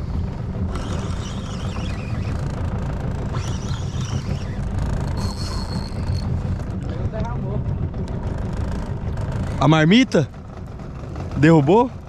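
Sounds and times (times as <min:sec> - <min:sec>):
outboard motor running: 0:00.0 - 0:12.0
thin high whine: 0:00.7 - 0:02.6, 0:03.3 - 0:06.7.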